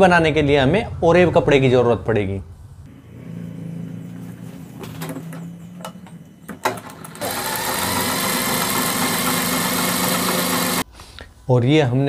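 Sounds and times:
sewing machine clicks: 0:06.6 - 0:10.8
sewing machine stitching: 0:06.6 - 0:10.8.

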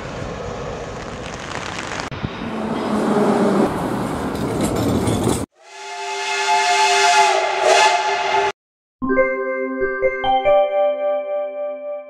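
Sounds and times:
tram running past: 0:00.0 - 0:08.5
steam locomotive whistle: 0:05.6 - 0:08.6.

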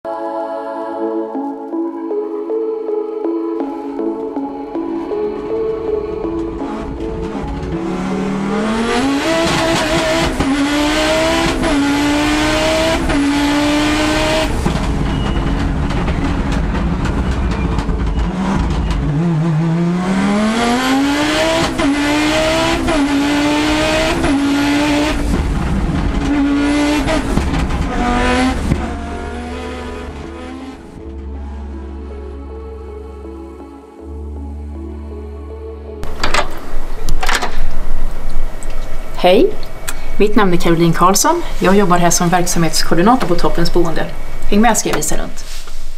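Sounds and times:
rally car engine accelerating: 0:05.0 - 0:33.7.

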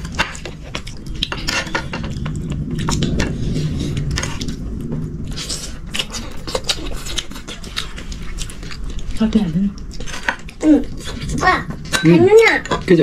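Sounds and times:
steady low rumble: 0:00.0 - 0:13.0
chewing mouth sounds: 0:05.3 - 0:09.2.

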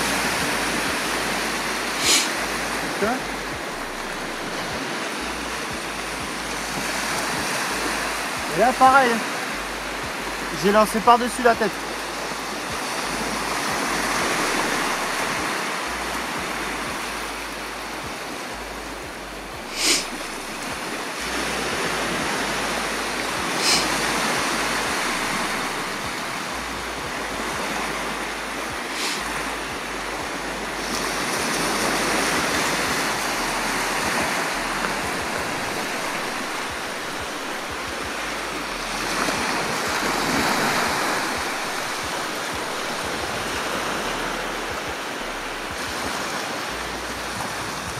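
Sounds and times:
sea surf washing onto beach: 0:00.0 - 0:47.9.

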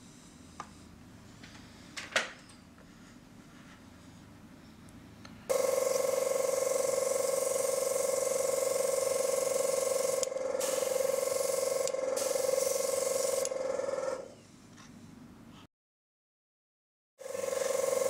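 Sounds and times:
compressor humming: 0:04.4 - 0:14.3, 0:17.2 - 0:18.0
air hissing through airbrush: 0:05.5 - 0:14.5.

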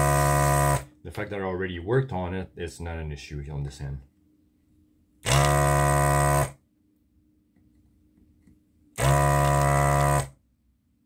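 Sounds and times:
desoldering pump buzzing: 0:00.0 - 0:00.9, 0:05.2 - 0:06.5, 0:09.0 - 0:10.3.

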